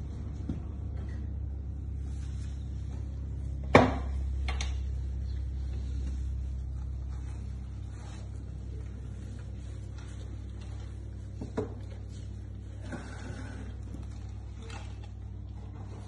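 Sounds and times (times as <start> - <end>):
steady low rumble: 0.0 - 12.8.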